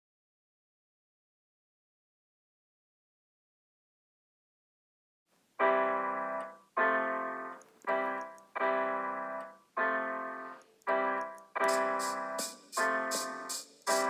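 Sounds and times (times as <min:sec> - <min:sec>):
keyboard playing slow chords: 0:05.6 - 0:14.0
high rhythmic percussion: 0:11.4 - 0:14.0.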